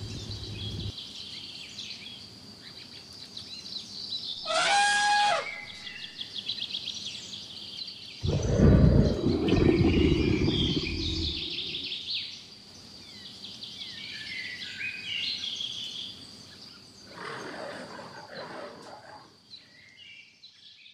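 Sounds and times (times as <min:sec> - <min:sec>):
birds singing and chirping: 0:00.0 - 0:00.9, 0:08.2 - 0:12.0
low rumble: 0:08.2 - 0:11.9.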